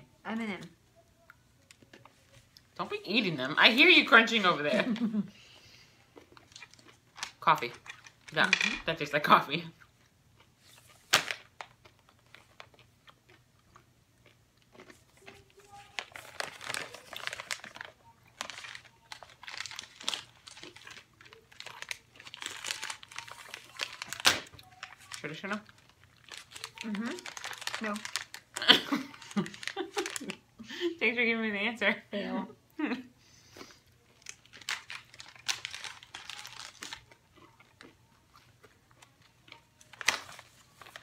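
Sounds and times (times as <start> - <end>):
plastic bag crinkling: 6.3 - 8.9, 14.8 - 30.4, 34.0 - 37.9, 38.6 - 41.0.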